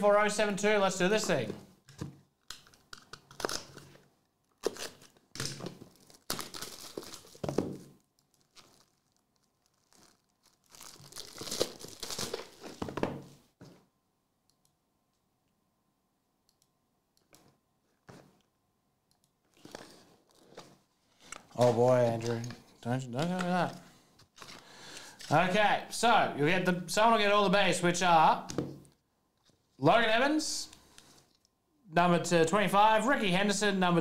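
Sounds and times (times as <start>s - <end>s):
plastic shrink wrap tearing: 4.6s - 7.4s, 8.2s - 12.8s.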